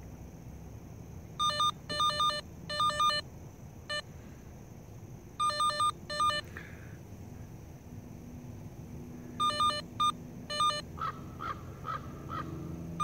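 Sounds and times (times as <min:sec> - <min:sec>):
short high electronic beeps: 0:09.4 - 0:10.8.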